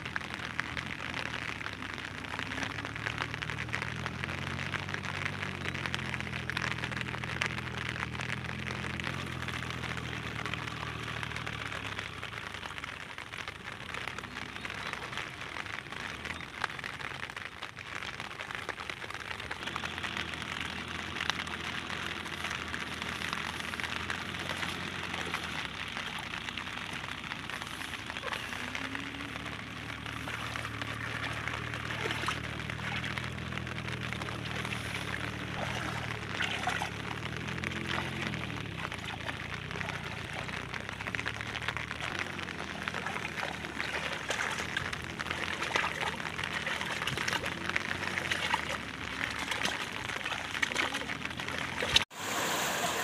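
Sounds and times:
steady rain: 0:00.0 - 0:53.0
water pouring and trickling: 0:00.0 - 0:53.0.

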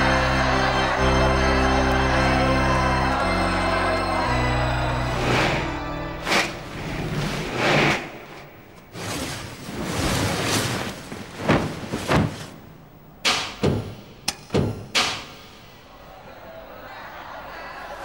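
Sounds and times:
thumps and bangs with ringing: 0:13.2 - 0:15.5.

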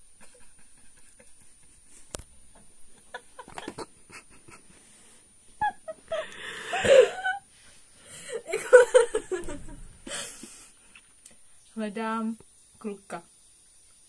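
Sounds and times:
young woman giggling: 0:02.9 - 0:04.7, 0:05.6 - 0:07.4, 0:08.3 - 0:10.3.

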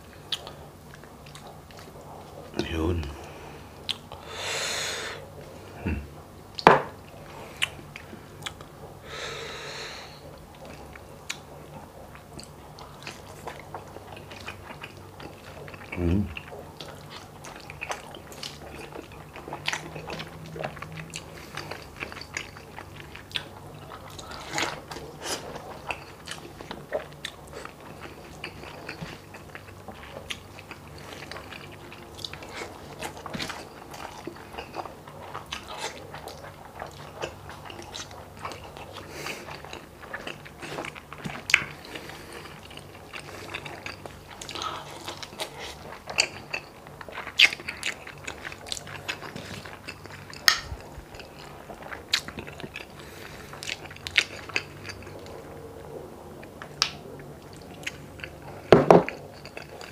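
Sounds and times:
steady low background hum: 0:00.0 - 0:59.9
wet chewing and biting: 0:12.2 - 0:55.5.

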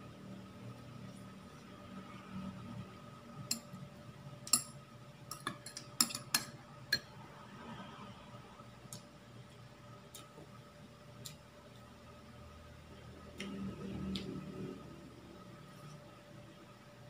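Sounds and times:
cutlery clicking on plates: 0:04.5 - 0:07.1.

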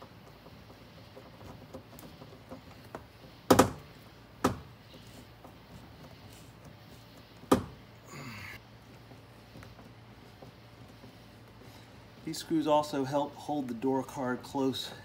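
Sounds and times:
knocks on door panel: 0:04.4 - 0:04.7.

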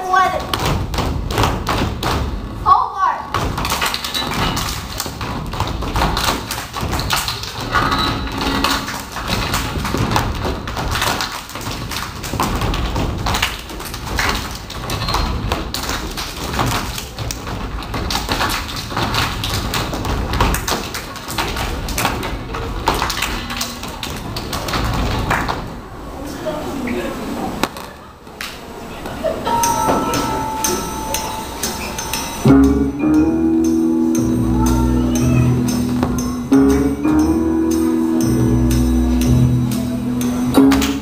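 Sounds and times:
foot stomps on wooden stage: 0:00.4 - 0:02.5, 0:03.3 - 0:23.1
hand claps: 0:03.4 - 0:25.6, 0:29.6 - 0:41.0.

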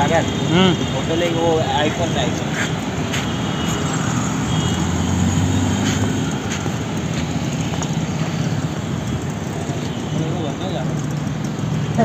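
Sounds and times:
vehicles passing: 0:00.0 - 0:12.0.

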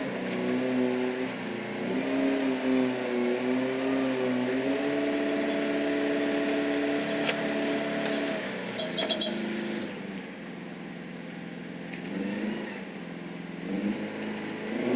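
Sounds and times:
concrete mixer engine running: 0:03.0 - 0:12.1
metallic rattles and squeaks: 0:05.0 - 0:09.7.

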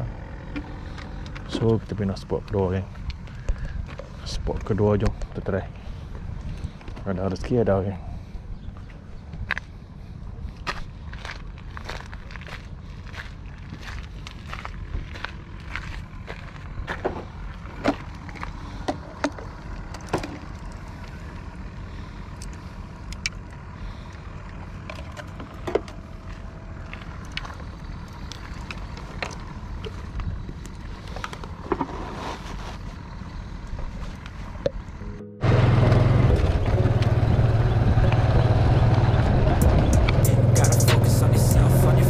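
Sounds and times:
scooter engine droning: 0:00.0 - 0:03.9, 0:16.8 - 0:42.0
steady low rumble: 0:00.0 - 0:42.0.

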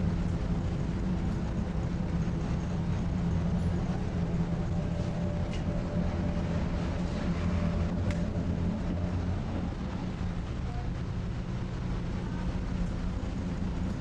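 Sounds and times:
bus engine rumbling: 0:00.0 - 0:14.0.

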